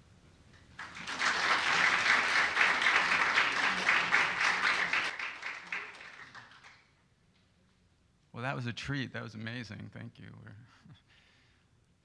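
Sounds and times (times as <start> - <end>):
audience applauding: 0.8 - 6.9.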